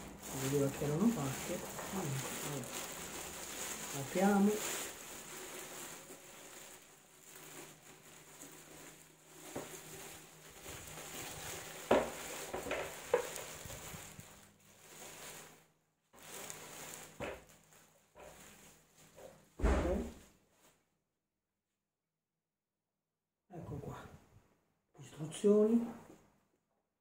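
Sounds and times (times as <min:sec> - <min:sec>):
plastic bag crinkling: 0:00.0 - 0:20.8.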